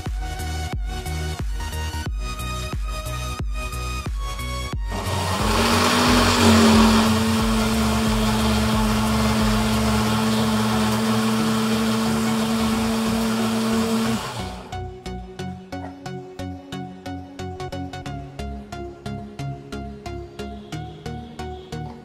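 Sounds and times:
electric motor whirring: 4.9s - 14.8s.

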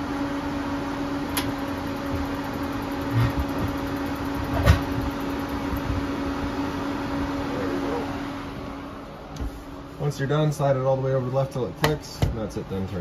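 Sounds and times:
furnace blower humming: 0.0s - 13.0s.

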